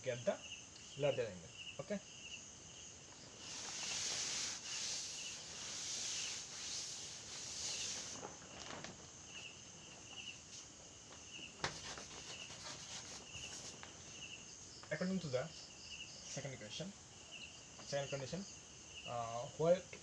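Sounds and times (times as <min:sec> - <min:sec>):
faint chalk strokes on board: 0:03.3 - 0:08.3, 0:11.6 - 0:14.0
duster wiping blackboard: 0:03.3 - 0:08.4, 0:11.6 - 0:13.9.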